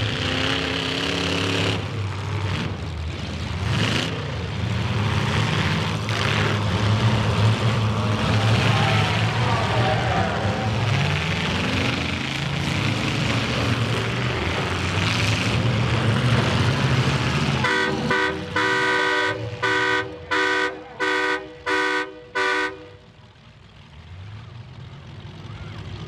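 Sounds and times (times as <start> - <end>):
car engines revving: 0.0 - 26.0
horn honking: 17.6 - 23.1.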